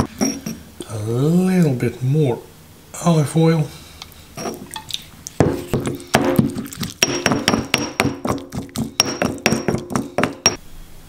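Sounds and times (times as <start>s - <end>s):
stone pestle pounding in mortar: 5.4s - 10.6s.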